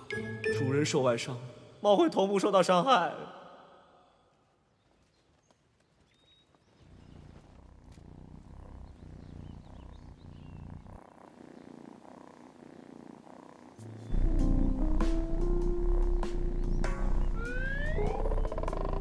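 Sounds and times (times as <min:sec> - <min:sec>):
cat purring: 0:06.8 - 0:19.0.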